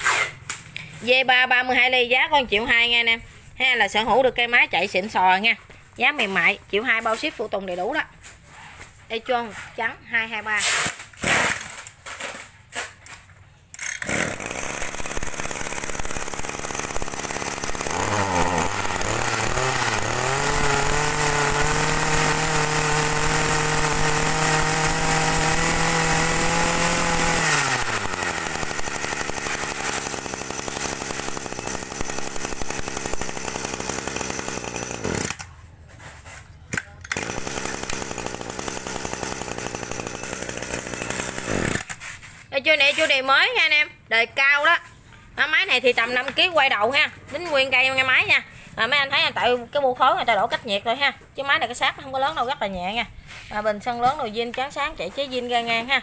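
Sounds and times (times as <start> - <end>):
brush cutter engine revving and idling: 13.8 - 35.5, 37.0 - 42.4.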